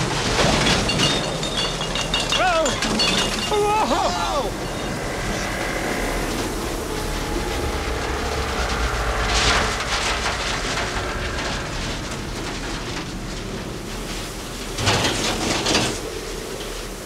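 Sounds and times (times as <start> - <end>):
deep rumble: 0.0 - 16.9
rushing wind: 0.0 - 17.0
hissing gust: 2.8 - 14.8.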